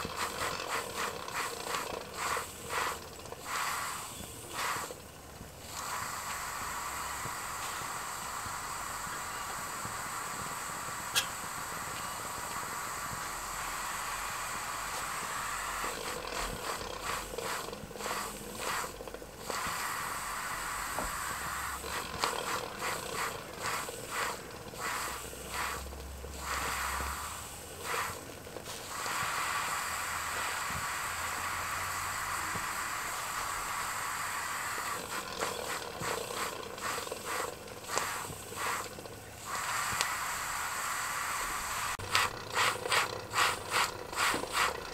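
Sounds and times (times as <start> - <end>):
steam engine exhaust puffing: 0.0 - 44.9
steam hissing: 0.0 - 44.9.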